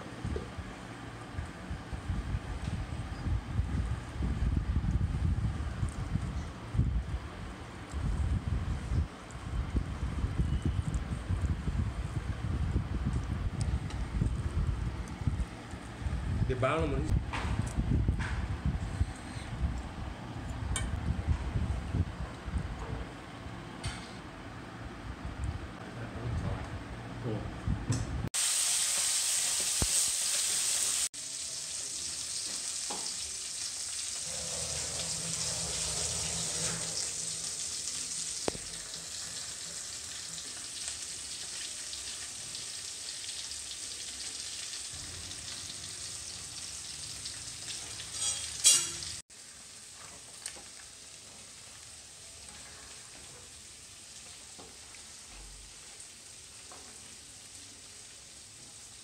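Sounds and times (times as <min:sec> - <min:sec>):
food sizzling in oil: 0:28.4 - 0:59.0.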